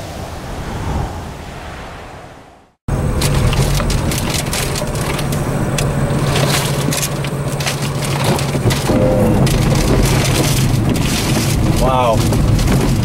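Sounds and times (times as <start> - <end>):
engine and road noise: 0.0 - 13.0.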